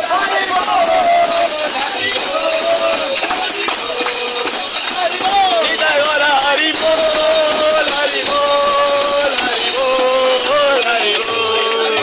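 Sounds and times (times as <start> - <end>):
group of men chanting: 0.0 - 12.0
jingling hand cymbals: 0.0 - 12.0.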